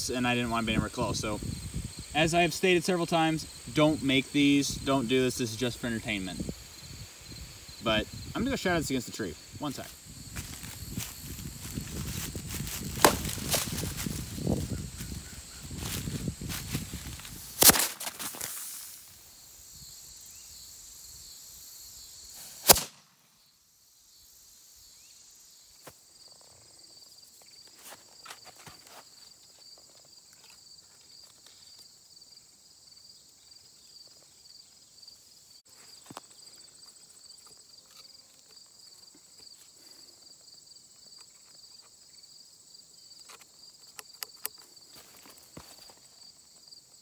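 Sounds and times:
insects chirring: 0.0 - 47.0.

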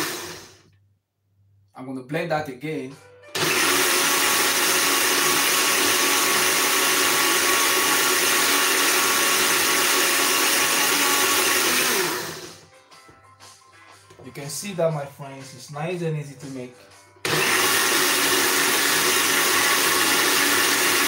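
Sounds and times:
blender motor running: 0.0 - 0.7, 3.4 - 12.6, 17.2 - 21.0.

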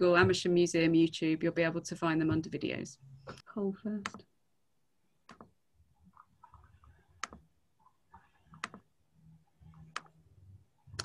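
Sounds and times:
computer mouse clicks: 4.0 - 4.3, 6.4 - 7.4, 8.1 - 8.9, 9.7 - 10.2.

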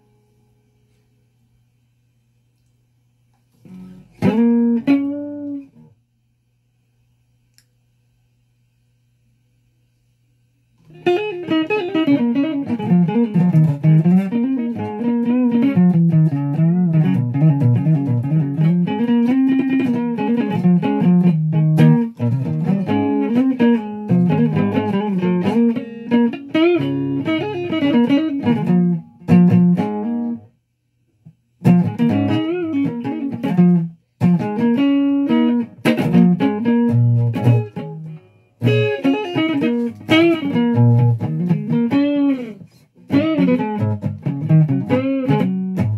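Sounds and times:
electric guitar picked notes: 3.6 - 5.8, 10.9 - 30.4, 31.6 - 45.9.

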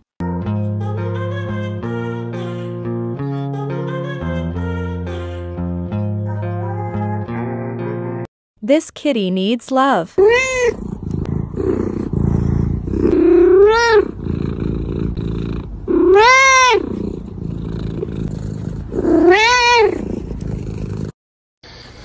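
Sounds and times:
cat meowing: 10.2 - 10.8, 13.1 - 14.2, 15.9 - 17.0, 19.1 - 20.0
cat purring: 10.5 - 21.2.

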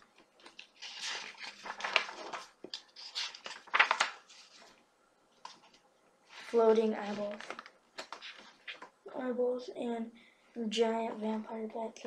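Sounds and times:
book pages rustling: 0.0 - 4.8, 5.4 - 9.0.

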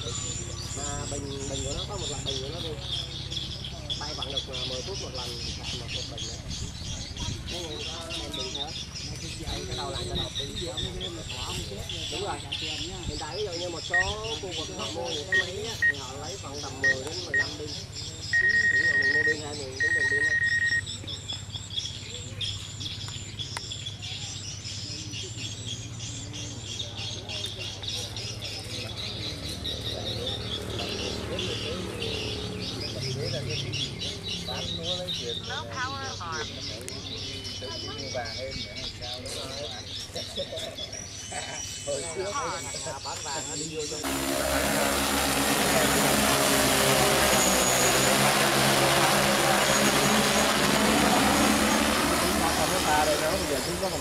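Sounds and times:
distant drone rotor hum: 0.0 - 40.0, 43.8 - 54.0
small birds chirping: 0.0 - 54.0
drone propellers buzzing: 44.0 - 54.0.

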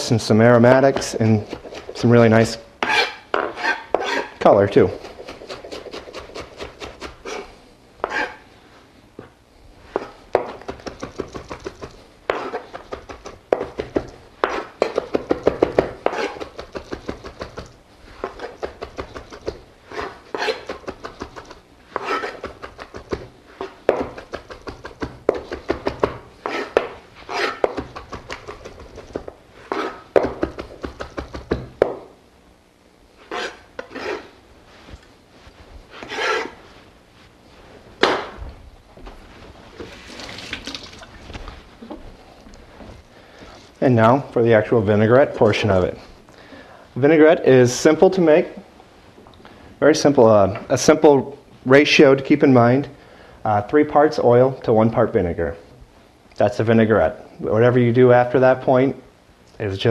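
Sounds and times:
knife chopping on cutting board: 0.9 - 2.2, 2.8 - 7.4, 10.0 - 32.1, 38.0 - 38.4.

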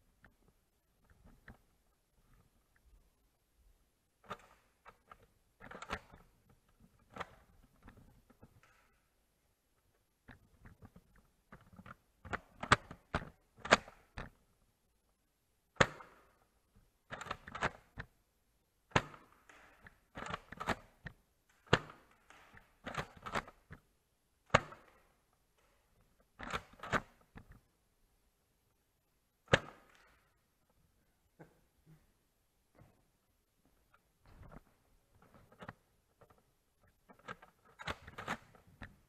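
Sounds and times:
toy blaster plastic clacks: 18.9 - 23.8.

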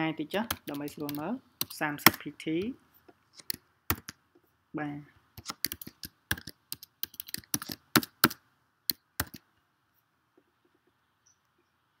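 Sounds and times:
computer keyboard typing: 0.4 - 2.2, 3.4 - 4.2, 5.4 - 9.4.

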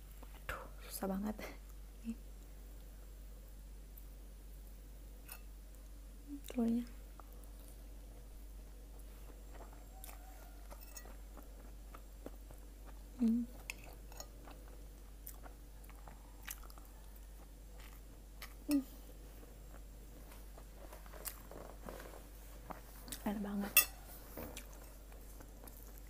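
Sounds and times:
person chewing food: 7.1 - 23.2, 23.8 - 26.0.

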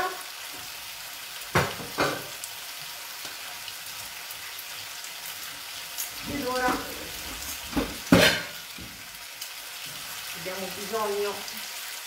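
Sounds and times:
food sizzling in pans: 0.0 - 12.0
kitchenware knocks: 1.5 - 2.3, 7.7 - 9.0.

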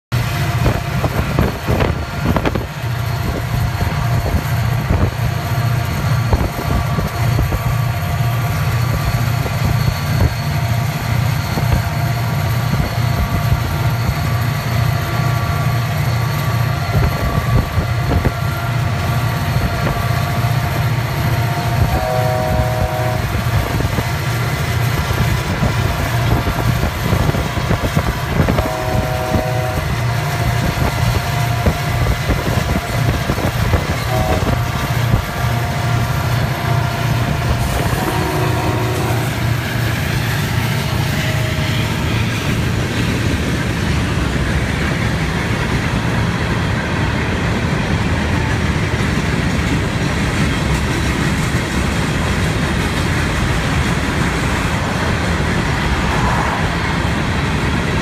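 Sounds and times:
diesel locomotive engines rumbling: 0.0 - 58.0
train horn chord: 21.5 - 23.8, 28.2 - 30.1, 33.9 - 39.8, 40.8 - 42.3.

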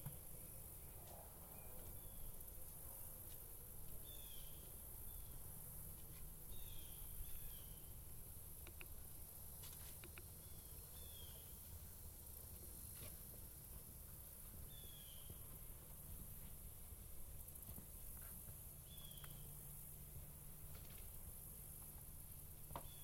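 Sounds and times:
faint clicks: 8.6 - 9.0.

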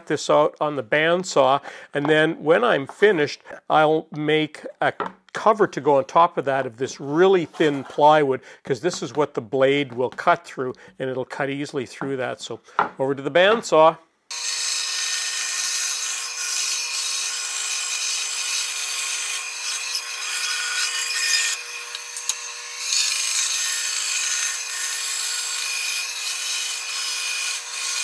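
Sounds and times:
bandsaw cutting wood: 14.3 - 28.0.

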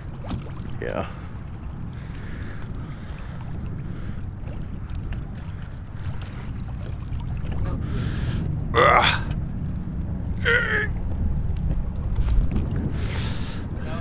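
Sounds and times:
wind on microphone: 0.0 - 14.0
man grunting with effort: 8.7 - 9.3, 10.4 - 11.0.

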